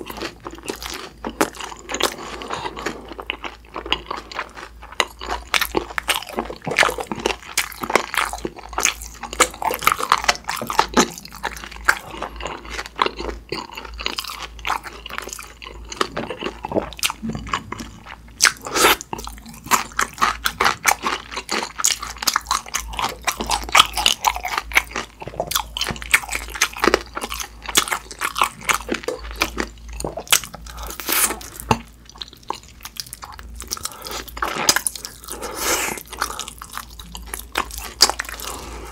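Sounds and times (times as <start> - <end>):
wet chewing: 0.0 - 38.9.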